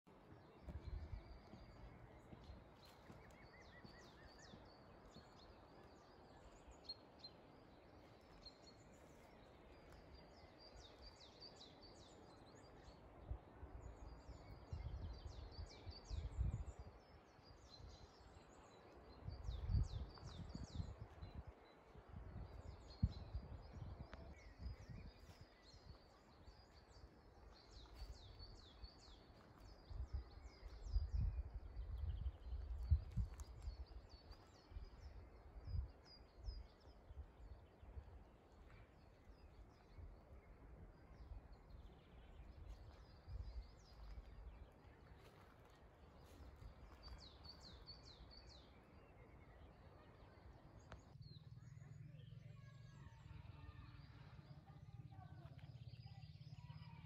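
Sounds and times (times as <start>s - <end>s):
small birds chirping: 0.0s - 57.0s
wind gusts on microphone: 13.2s - 18.0s, 19.1s - 26.6s, 29.7s - 38.3s.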